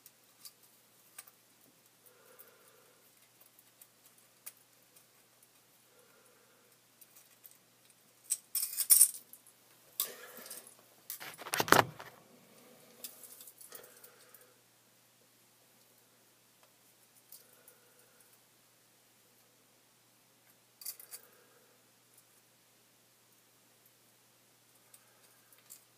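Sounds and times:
small metal objects jingling: 0:08.2 - 0:09.4.

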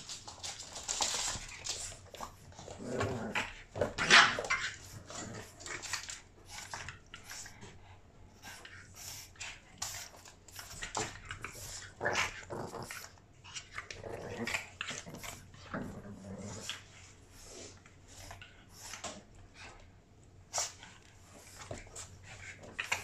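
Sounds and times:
dogs scuffling: 0:00.0 - 0:07.7
dogs growling: 0:00.8 - 0:07.0, 0:10.6 - 0:18.5.

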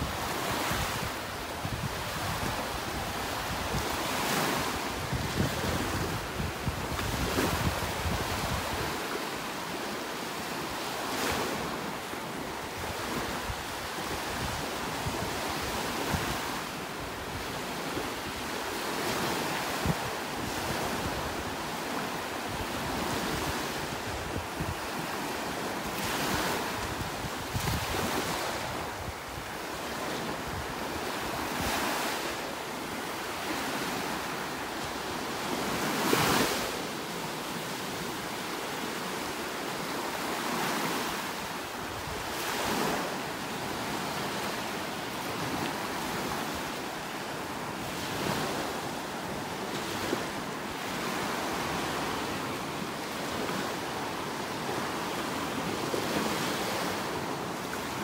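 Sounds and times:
wind buffeting microphone: 0:00.0 - 0:09.0, 0:22.5 - 0:25.3, 0:26.0 - 0:32.2
small waves breaking on sand: 0:00.0 - 0:58.0.

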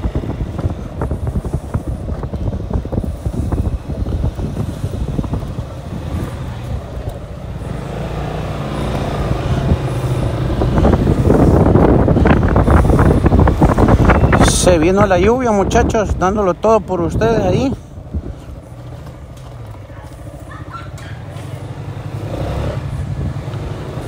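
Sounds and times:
motorcycle engine running: 0:00.0 - 0:15.1, 0:17.3 - 0:24.0
wind buffeting on microphone: 0:00.0 - 0:24.0.

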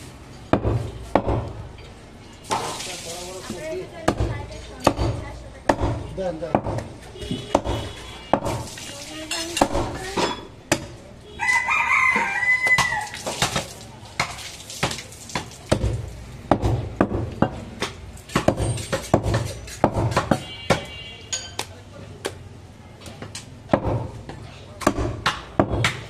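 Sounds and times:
knife chopping on wooden block: 0:04.0 - 0:06.9, 0:15.4 - 0:20.9, 0:23.7 - 0:26.0
rooster crowing: 0:11.4 - 0:13.2.

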